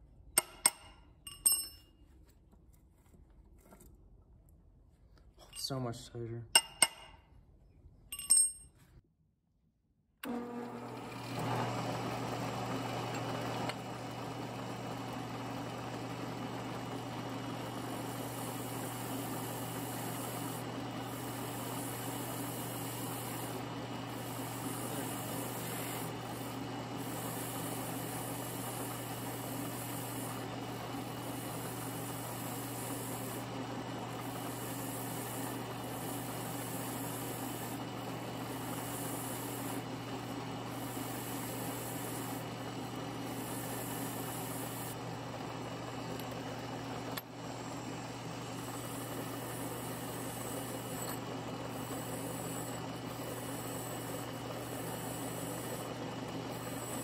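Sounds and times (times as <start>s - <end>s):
drill press with wire wheel spinning: 10.2s - 57.0s
bolt scrubbed against wire wheel: 50.7s - 51.3s.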